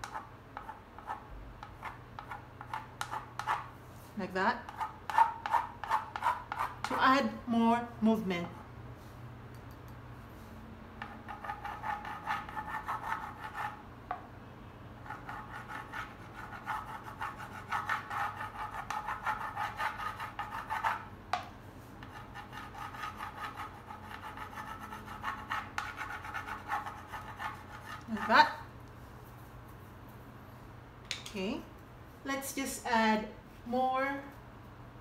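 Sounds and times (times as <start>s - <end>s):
palette knife scraping paint: 0.0s - 3.7s, 4.7s - 7.0s, 11.0s - 13.8s, 15.0s - 21.1s, 22.0s - 28.6s.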